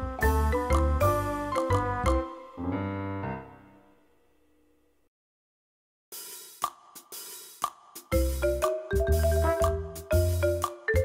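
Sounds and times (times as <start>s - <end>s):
upbeat background music: 0.0s - 3.7s, 6.2s - 11.0s.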